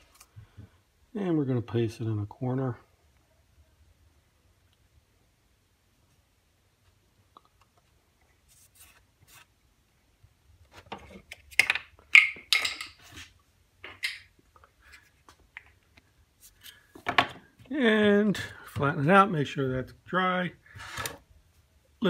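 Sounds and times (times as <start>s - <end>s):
paper rustling and scraping: 8.4s - 9.5s.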